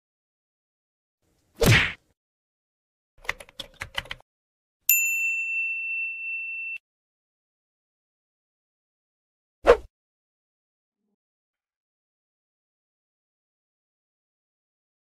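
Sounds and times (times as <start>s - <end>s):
notification bell ding: 4.9s - 6.8s.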